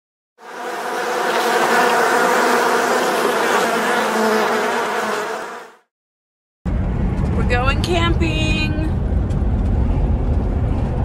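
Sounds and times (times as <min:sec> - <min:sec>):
bees buzzing: 0:00.4 - 0:05.9.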